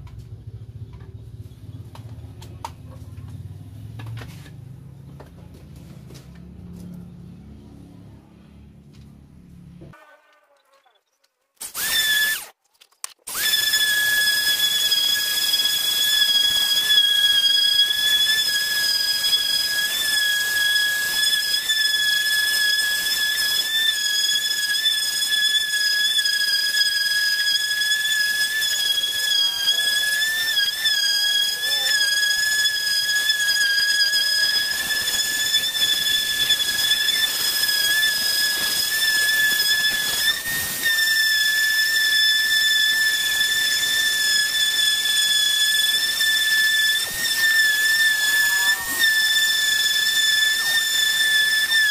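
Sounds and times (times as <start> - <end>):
orbital sander motor whine: 13.3 - 51.9.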